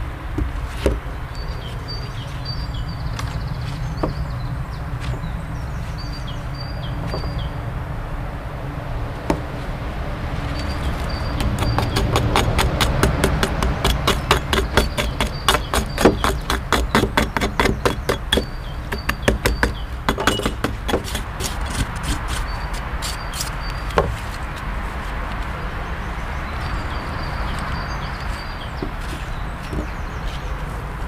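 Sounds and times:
scraper scraping rust off metal: 10.6 - 24.4
scratchy hiss: 21.0 - 25.2.

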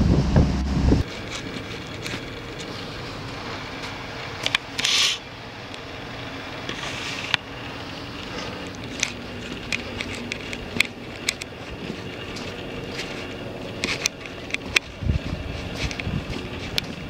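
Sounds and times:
low engine drone: 0.0 - 17.0
footsteps crunching over rubble: 1.0 - 4.8, 7.4 - 17.0.

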